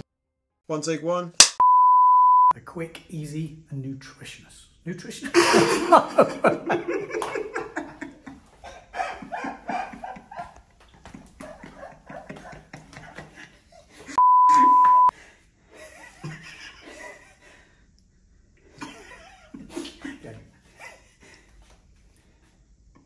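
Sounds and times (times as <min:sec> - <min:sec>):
censor bleep: 0:01.6 - 0:02.6, 0:14.2 - 0:15.1
man laughing: 0:05.2 - 0:15.1, 0:15.7 - 0:17.5, 0:18.8 - 0:21.5.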